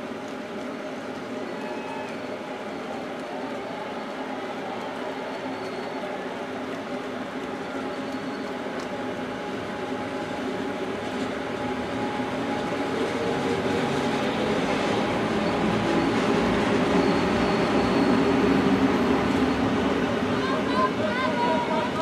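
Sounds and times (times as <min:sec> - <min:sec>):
steady rain hiss: 0:00.0 - 0:15.4
train wheels on rails: 0:00.0 - 0:22.0.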